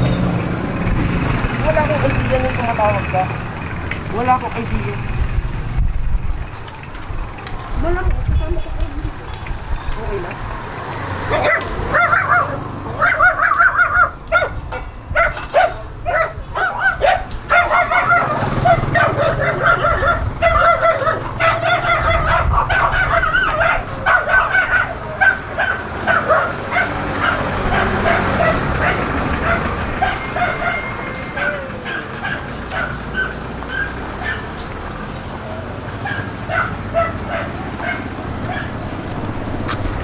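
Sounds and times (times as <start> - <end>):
dog barking: 11.2 - 34.6, 36.0 - 38.8.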